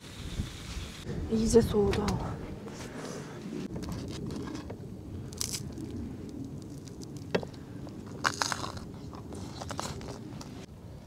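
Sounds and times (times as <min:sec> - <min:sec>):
steady low rumble: 0:00.0 - 0:11.0
people chewing and crunching: 0:03.7 - 0:10.7.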